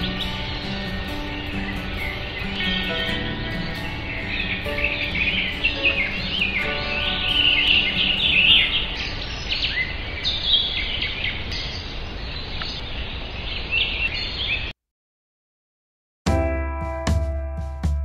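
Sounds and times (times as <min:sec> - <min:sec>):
faint music: 0:00.0 - 0:10.1
birds chirping and singing: 0:00.0 - 0:14.7.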